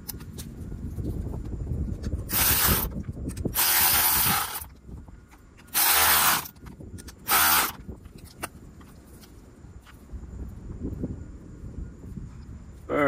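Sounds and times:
ratchet tightening a nut: 2.3 - 4.7, 5.6 - 7.8.

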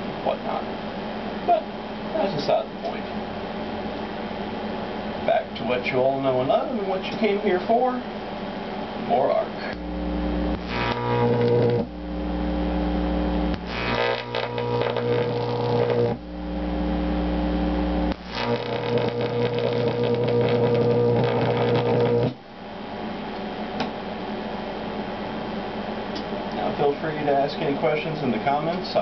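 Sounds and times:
transformer humming loudly: 8.4 - 26.7
high-voltage arc buzzing: 8.6 - 22.7.

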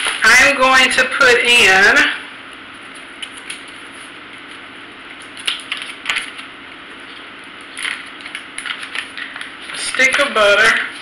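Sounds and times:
faint steady hum: 0.0 - 11.0
plastic bag crinkling: 2.8 - 10.4.

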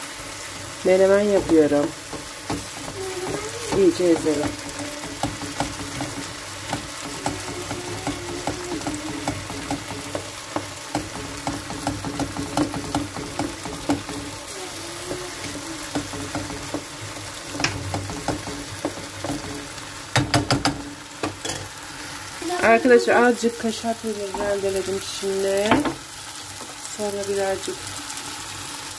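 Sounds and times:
vegetables sizzling in a frying pan: 0.0 - 28.9
spoon tapping and scraping pan: 1.2 - 21.7, 24.2 - 25.0.

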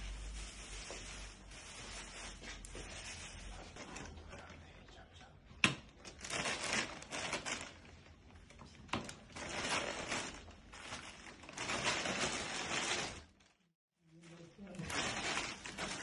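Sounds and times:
bags rustling: 6.0 - 8.2, 9.2 - 13.6, 14.4 - 16.0.

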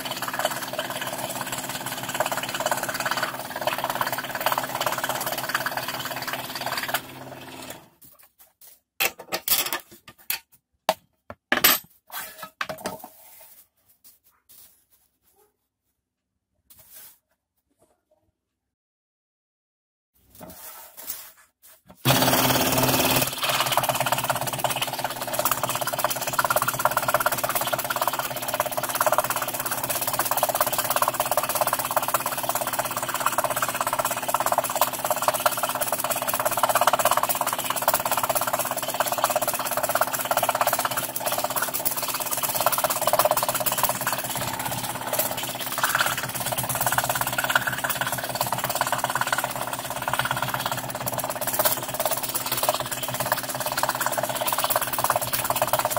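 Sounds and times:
scroll saw cutting plywood: 22.0 - 24.2.

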